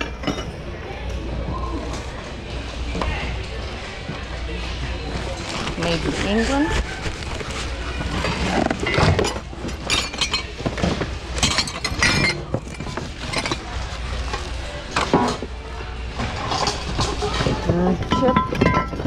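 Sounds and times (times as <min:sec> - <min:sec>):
glassware clinking in a bin: 0:00.0 - 0:00.7, 0:08.1 - 0:14.4, 0:16.4 - 0:19.0.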